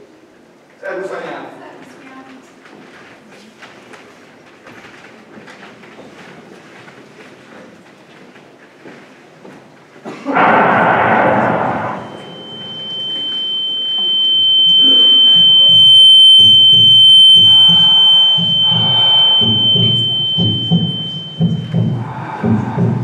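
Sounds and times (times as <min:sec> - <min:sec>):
loud rush of noise: 0:10.3 - 0:13.7, 0:18.6 - 0:21.4
high-pitched ringing tone: 0:10.4 - 0:23.0
low rhythmic thumping: 0:15.4 - 0:23.0.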